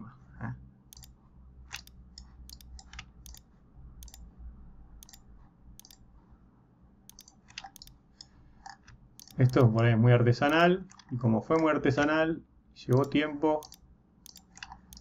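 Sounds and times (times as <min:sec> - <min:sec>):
computer mouse button clicking: 0:00.9 - 0:01.1, 0:01.7 - 0:03.4, 0:04.0 - 0:04.2, 0:05.0 - 0:05.2, 0:05.8 - 0:06.0, 0:07.1 - 0:08.4, 0:09.2 - 0:09.7, 0:12.9 - 0:15.0.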